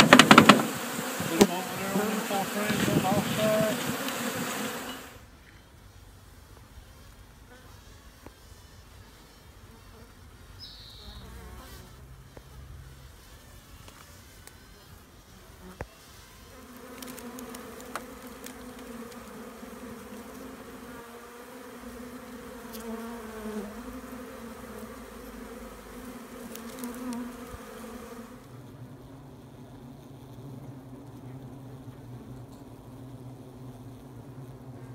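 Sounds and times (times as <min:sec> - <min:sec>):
bees buzzing: 0:00.0 - 0:05.3, 0:06.0 - 0:34.9.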